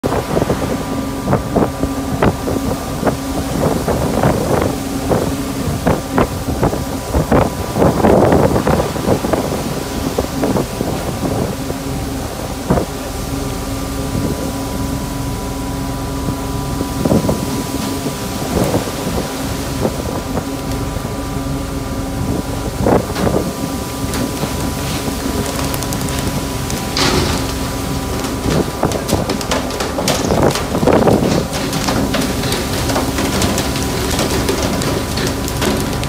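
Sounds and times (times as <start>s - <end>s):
boat engine hum: 0.0s - 36.0s
wind on microphone: 0.0s - 36.0s
rushing water: 16.0s - 36.0s
knocks and splashes: 22.3s - 36.0s.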